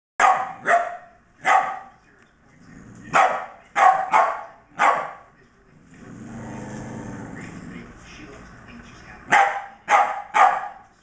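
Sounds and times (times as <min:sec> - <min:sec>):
dog barking: 0:00.2 - 0:02.0, 0:03.1 - 0:05.3, 0:09.3 - 0:10.8.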